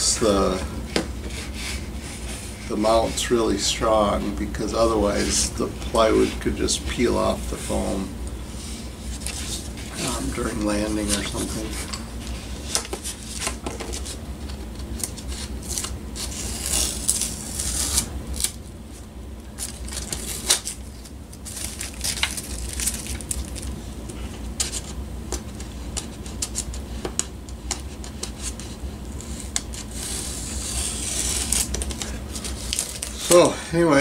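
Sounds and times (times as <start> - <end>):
steady low hum: 0.0 - 34.0
tape tearing: 14.8 - 18.6, 19.5 - 23.7, 27.7 - 33.5
tape clicks and rustles: 19.4 - 30.0, 31.0 - 33.4.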